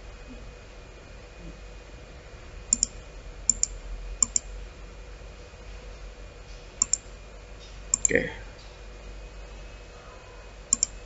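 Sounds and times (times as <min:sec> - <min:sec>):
faint steady hum: 0:00.0 - 0:11.0
computer mouse clicks: 0:02.7 - 0:04.5, 0:06.8 - 0:07.0, 0:07.9 - 0:08.2, 0:10.7 - 0:11.0.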